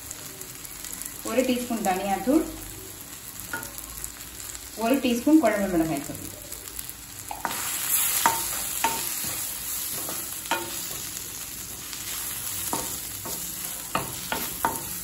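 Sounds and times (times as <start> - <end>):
vegetables sizzling in oil: 0.0 - 15.0
spatula knocking and scraping a pan: 7.3 - 15.0.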